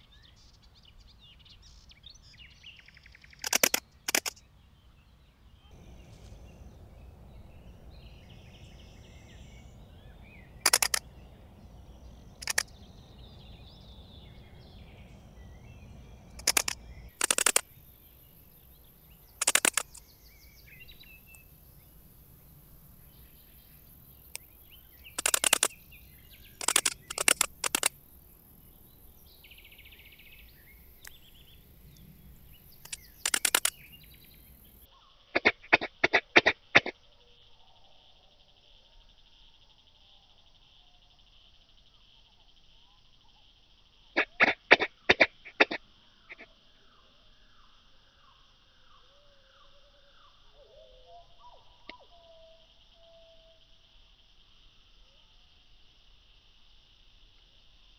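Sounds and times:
locust raspy chirps: 2.8 - 4.4, 8.3 - 17.9, 19.2 - 22.8, 23.5 - 28.0, 32.4 - 34.6, 44.2 - 46.5.

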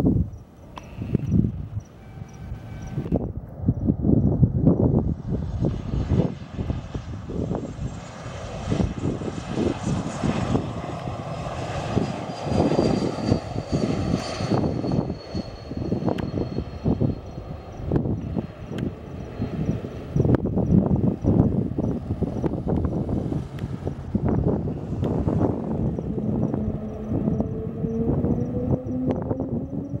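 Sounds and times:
jet engines whining: 0.5 - 30.0
low engine rumble: 15.7 - 30.0.

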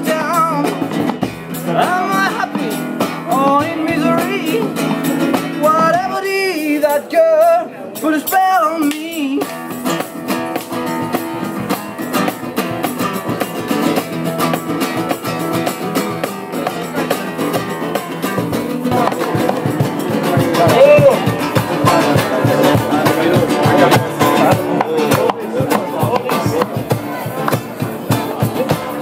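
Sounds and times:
acoustic guitar strumming: 0.0 - 29.0
man singing: 0.0 - 29.0
cajon slaps: 8.8 - 29.0.

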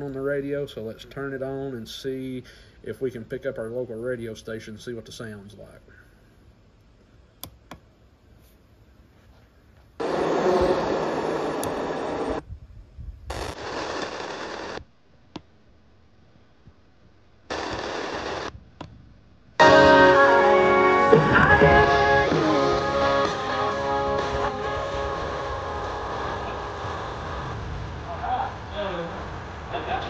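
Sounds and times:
radio static hissing: 10.0 - 12.4, 13.3 - 14.9, 17.5 - 18.6, 19.6 - 30.0.

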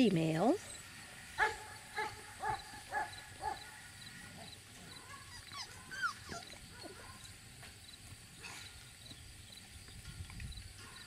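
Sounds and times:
puppy yipping: 4.9 - 7.2
puppy whimpering: 5.0 - 7.0.

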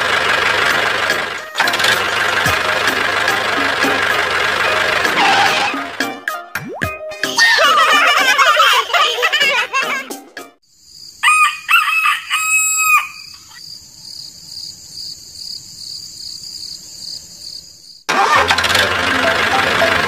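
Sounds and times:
background music: 1.0 - 10.6, 18.4 - 20.0
rooster crowing: 11.2 - 14.2.

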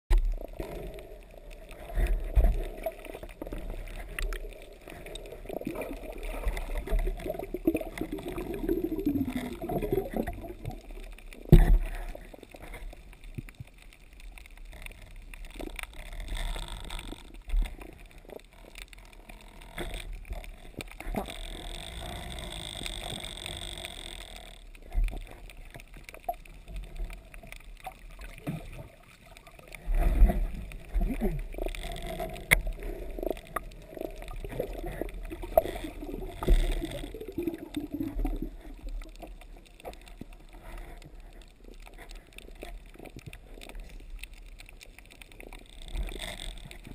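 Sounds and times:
muffled underwater thumps and knocks: 11.5 - 12.1.

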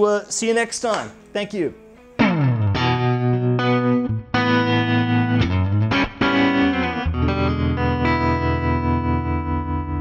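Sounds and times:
electric guitar chords ringing: 1.1 - 10.0
bass part: 2.2 - 10.0.

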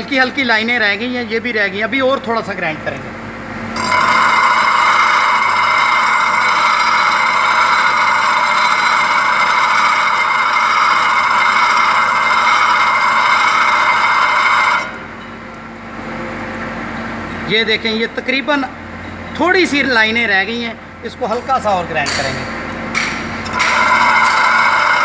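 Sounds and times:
grinder motor hum: 3.7 - 15.2, 23.2 - 25.0
metal grinding hiss: 3.8 - 15.0, 23.5 - 25.0.

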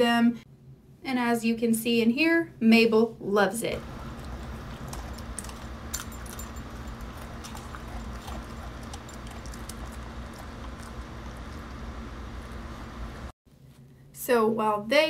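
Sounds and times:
dog chewing dry kibble: 3.8 - 13.3.

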